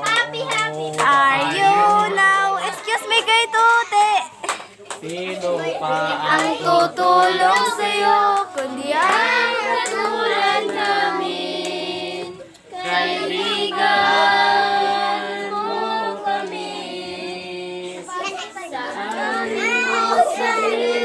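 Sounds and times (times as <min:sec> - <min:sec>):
children singing together: 0:05.4 - 0:21.0.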